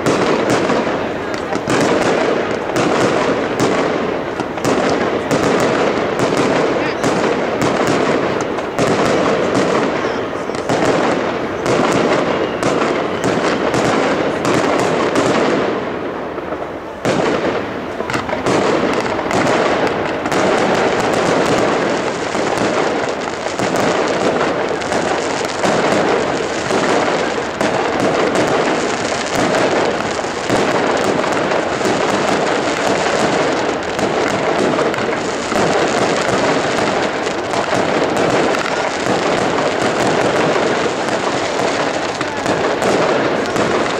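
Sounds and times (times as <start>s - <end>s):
fireworks crackling and popping: 0.0s - 43.9s
firework shells bursting: 16.4s - 43.9s.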